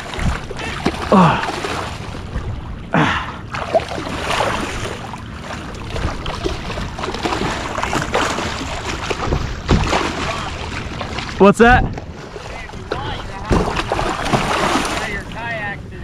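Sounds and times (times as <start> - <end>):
water lapping around kayak: 0.0 - 16.0
wind on microphone: 9.0 - 10.0.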